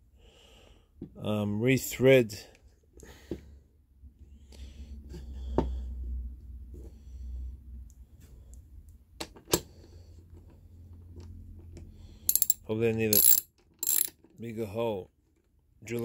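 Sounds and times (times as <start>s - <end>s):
sharp metal clicks: 12.3s - 14.1s.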